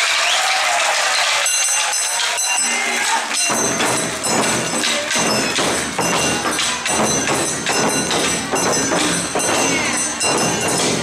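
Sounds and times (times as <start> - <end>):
taiko drums beating: 3.1 - 11.0
metallic ringing: 3.4 - 11.0.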